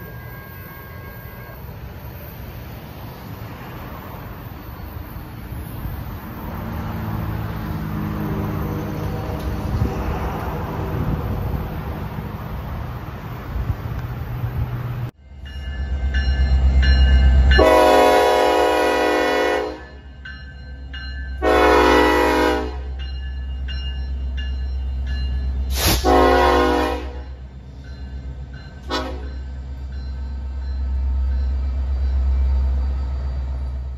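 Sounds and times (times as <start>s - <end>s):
locomotive air horn blasts: 0.0s - 1.8s, 17.6s - 20.0s, 21.4s - 22.9s, 25.7s - 27.4s, 28.9s - 29.3s
low rumble of moving train: 0.0s - 33.9s.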